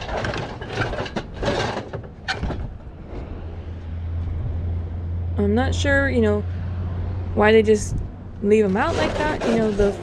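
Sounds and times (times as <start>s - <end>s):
wooden crate slats scraping: 0.0s - 3.3s, 8.6s - 10.0s.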